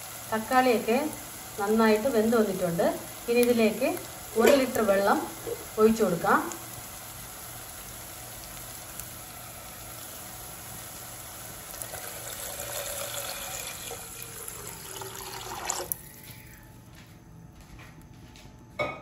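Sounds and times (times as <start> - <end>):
vegetables sizzling in oil: 0.0 - 16.2
water pouring into pot: 8.1 - 16.0.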